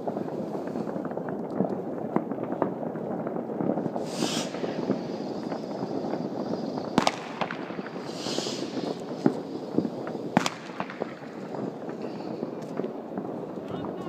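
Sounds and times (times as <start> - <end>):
fireworks bangs and crackles: 0.0 - 14.0
rocket hiss: 3.6 - 14.0.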